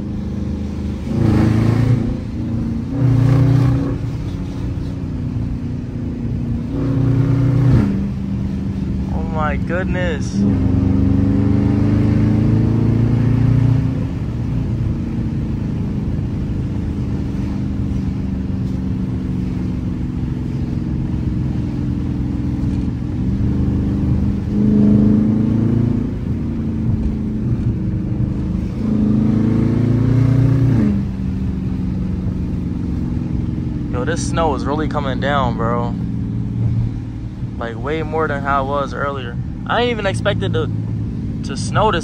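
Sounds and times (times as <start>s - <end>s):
car engine accelerating: 0.0s - 42.0s.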